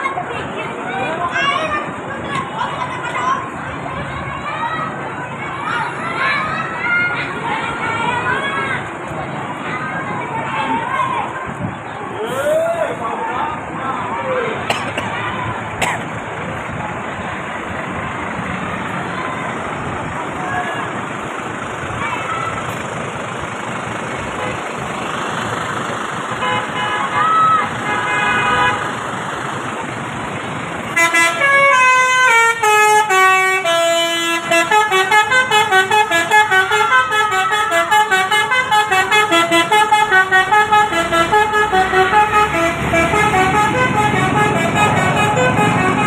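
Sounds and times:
road noise: 0.0s - 46.0s
musical air horn melody: 31.0s - 46.0s.

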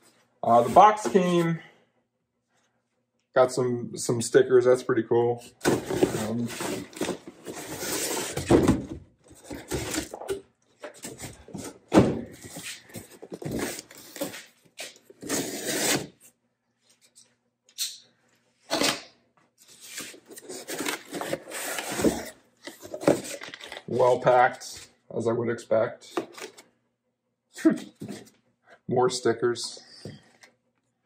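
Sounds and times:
cardboard scraping and rustling: 5.6s - 10.3s.

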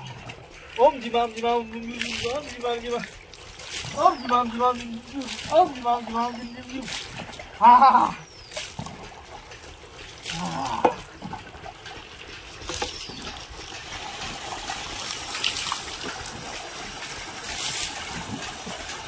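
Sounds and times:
sharp water splash: 1.9s - 7.5s, 8.2s - 9.1s, 12.6s - 19.0s
tap running into plastic bucket: 10.8s - 16.2s.

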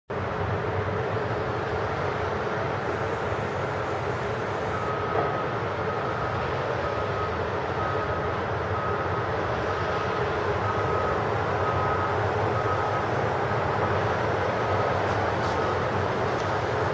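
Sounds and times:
road traffic hum: 1.9s - 4.9s.

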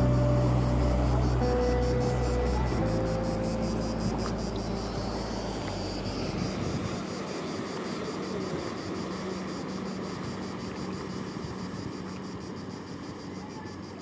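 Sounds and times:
low rumble: 0.0s - 7.2s
crickets chirping: 0.0s - 14.0s.

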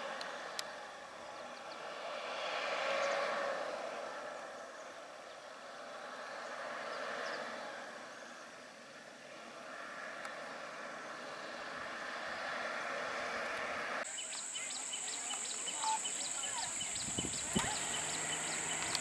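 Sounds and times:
bus engine running: 15.6s - 19.0s.

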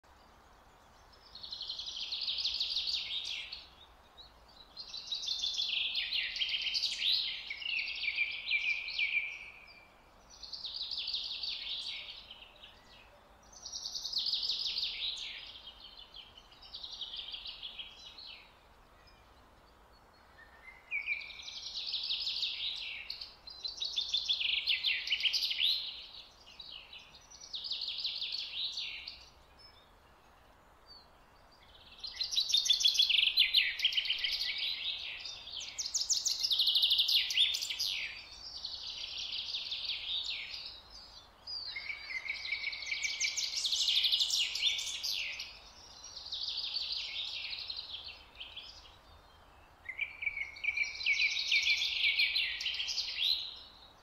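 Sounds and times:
faint steady hiss: 0.0s - 54.0s.

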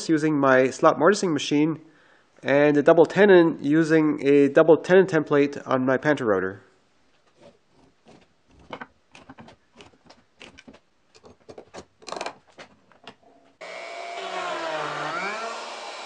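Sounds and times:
router motor running: 13.6s - 16.0s.

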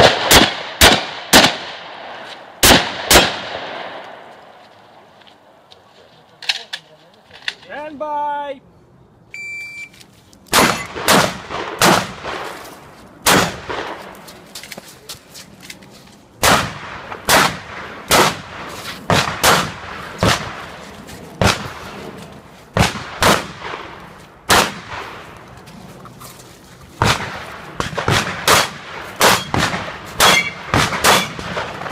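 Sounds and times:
shotgun shots: 0.0s - 4.3s, 10.5s - 12.6s, 13.2s - 14.1s, 16.4s - 20.8s, 21.4s - 22.1s, 22.8s - 25.2s, 27.0s - 31.9s.

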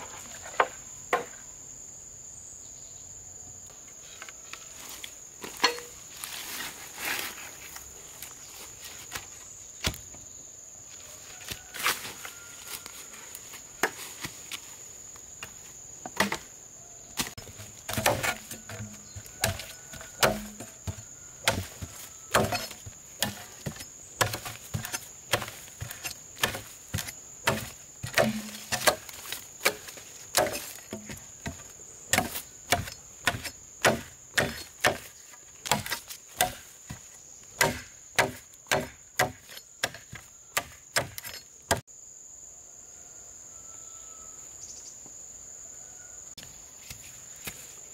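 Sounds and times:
insects buzzing: 0.0s - 47.9s
wood being chopped: 9.8s - 10.0s, 16.1s - 16.5s, 17.2s - 41.8s.

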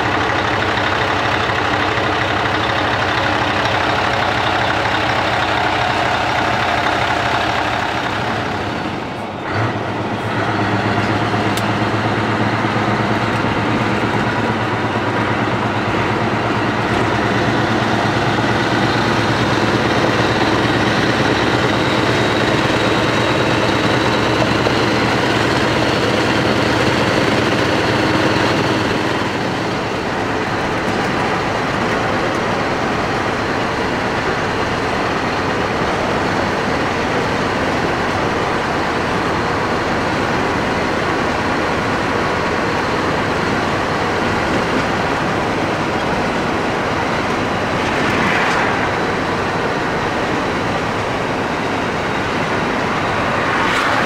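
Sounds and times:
diesel truck engine idling: 0.0s - 54.0s
truck cab drone while driving: 0.0s - 54.0s.

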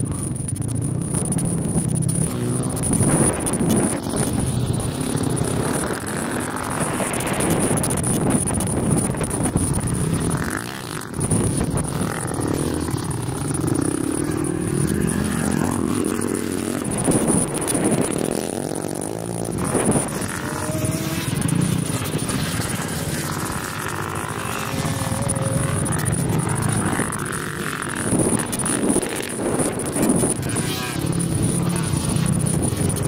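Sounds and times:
vehicle engines revving: 0.0s - 33.0s.

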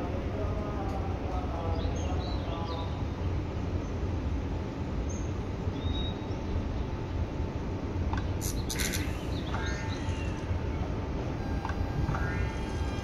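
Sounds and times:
train running gear rumble: 0.0s - 13.0s
faint inverter whine: 5.4s - 13.0s
short hiss: 8.4s - 9.4s.

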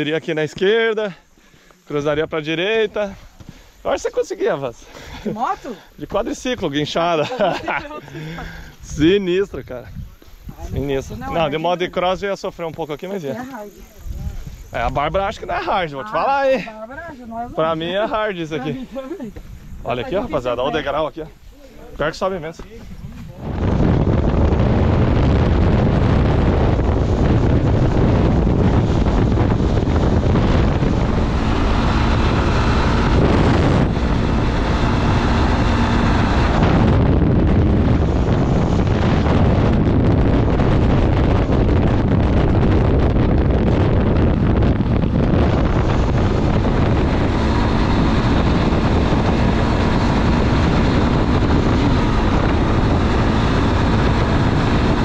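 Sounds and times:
wind buffeting microphone: 1.9s - 55.0s
motorcycle engine droning: 23.1s - 55.0s.

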